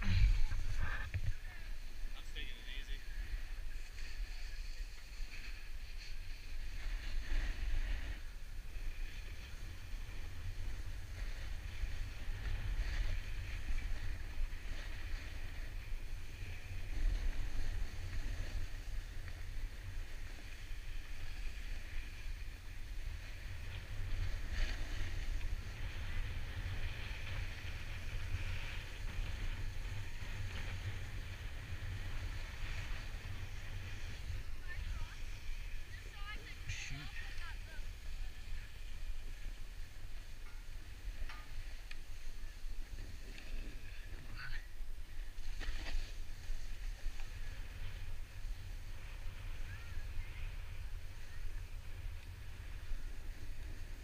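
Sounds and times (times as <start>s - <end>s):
edges scraping on snow: 45.4s - 48.0s.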